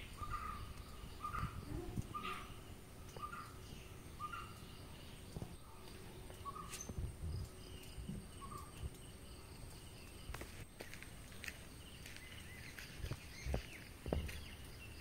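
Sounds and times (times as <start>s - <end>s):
faint high calls: 0.0s - 3.6s.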